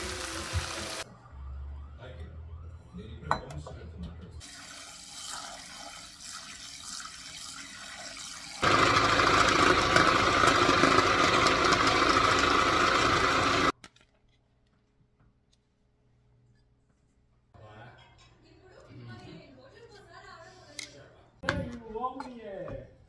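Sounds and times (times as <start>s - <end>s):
food processor whirring: 0.0s - 1.0s, 8.6s - 13.7s.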